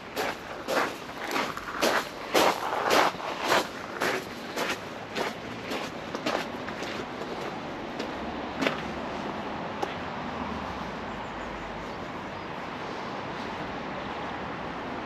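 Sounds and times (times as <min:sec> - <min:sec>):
distant road traffic hiss: 0:00.0 - 0:15.0
footsteps: 0:00.1 - 0:09.0.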